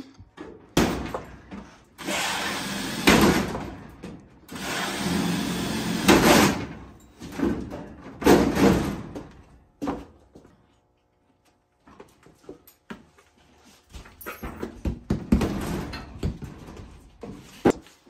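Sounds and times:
cordless drill bursts on metal: 0:02.0 - 0:03.6, 0:04.5 - 0:06.8.

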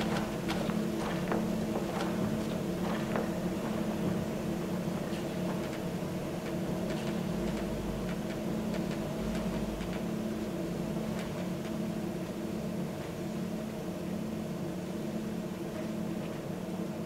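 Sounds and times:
faint clicks and crackles: 0:05.1 - 0:10.1.

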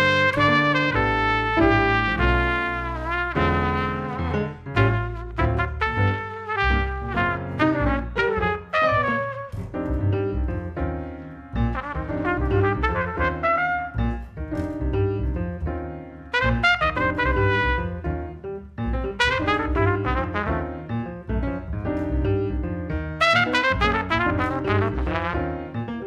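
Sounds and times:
trumpet playing melody: 0:00.0 - 0:09.7, 0:11.7 - 0:14.2, 0:16.3 - 0:18.0, 0:19.2 - 0:20.8, 0:23.2 - 0:25.6
plucked double bass: 0:00.0 - 0:11.0, 0:11.6 - 0:25.6
piano: 0:00.0 - 0:26.0.

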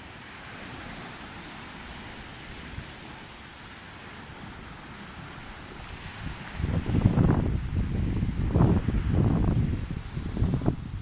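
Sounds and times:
small waves washing on beach: 0:00.0 - 0:11.0
wind rumbling on microphone: 0:04.2 - 0:11.0.

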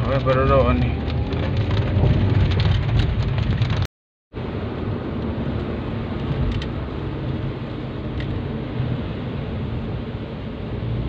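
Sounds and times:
raindrops ticking on windshield: 0:00.0 - 0:03.9
car road and engine rumble: 0:00.0 - 0:11.0.

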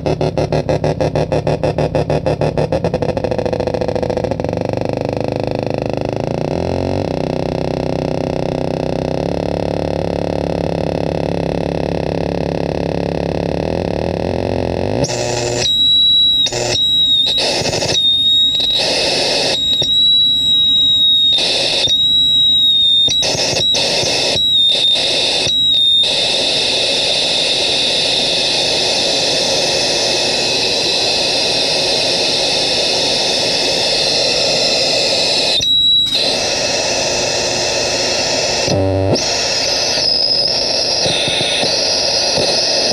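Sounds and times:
electronic hiss and hum: 0:00.0 - 0:42.9
high steady whistle: 0:15.1 - 0:42.9.

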